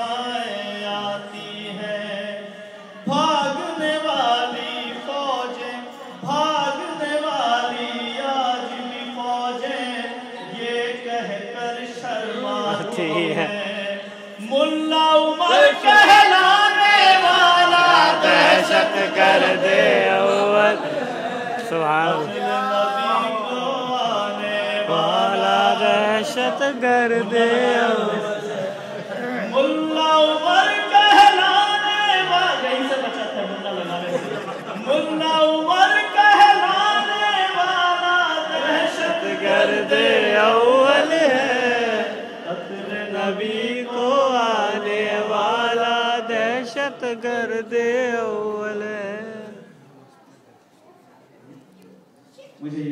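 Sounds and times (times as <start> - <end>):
man singing unaccompanied: 0.0 - 20.9, 21.6 - 28.6, 35.0 - 49.7
man chanting devotional poem: 0.0 - 34.0.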